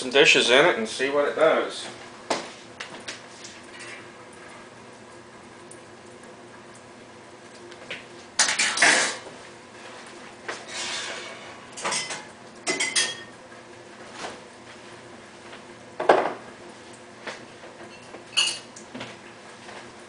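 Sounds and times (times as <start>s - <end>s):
dishes and dish racks clattering: 8.4s - 9.2s, 10.6s - 13.3s, 17.8s - 18.7s.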